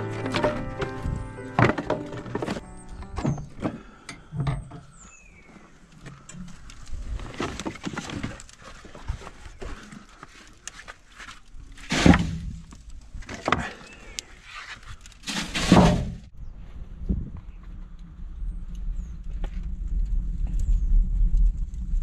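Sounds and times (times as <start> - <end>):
wood clattering into firebox: 0.0 - 5.1, 6.0 - 14.0, 14.8 - 16.3.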